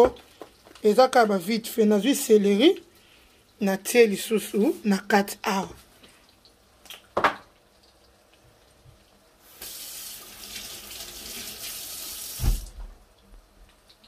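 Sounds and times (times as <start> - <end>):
kitchen tap running: 9.4 - 12.8.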